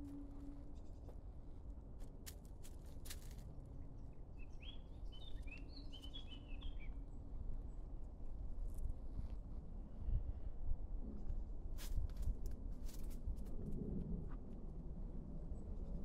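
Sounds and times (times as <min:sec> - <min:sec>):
bird chirping: 0:04.3 - 0:07.0
low rumble: 0:06.8 - 0:16.0.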